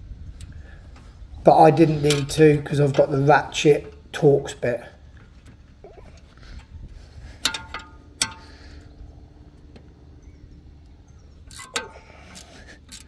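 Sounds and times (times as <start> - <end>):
metal hand tools clinking: 7.4 - 8.8, 11.5 - 13.0
ringing metallic clinks: 7.4 - 8.8.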